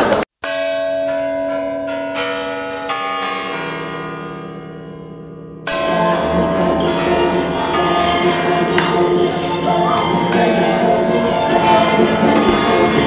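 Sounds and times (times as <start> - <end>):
bells ringing: 0.4 - 13.0
music: 5.7 - 13.0.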